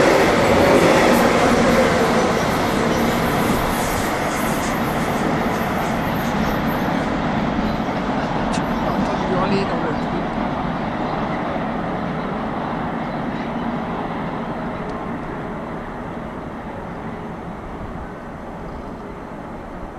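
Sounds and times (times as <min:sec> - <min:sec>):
electric locomotive: 0:00.0 - 0:19.9
train wheels rumbling on rails: 0:00.0 - 0:19.9.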